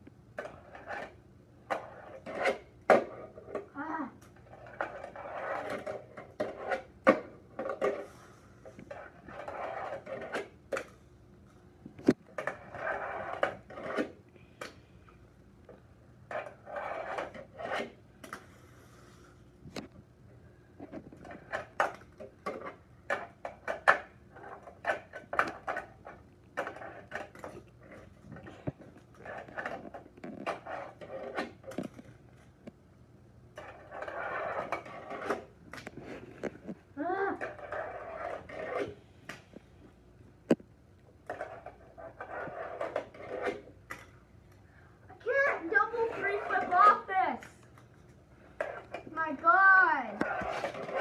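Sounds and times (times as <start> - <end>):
fingerboard rolling on plastic ramps: 4.4 - 10.9, 11.9 - 14.2, 16.3 - 19.0, 20.8 - 32.2, 33.6 - 36.8, 37.4 - 39.4, 41.2 - 44.2, 48.6 - 49.1, 50.2 - 51.0.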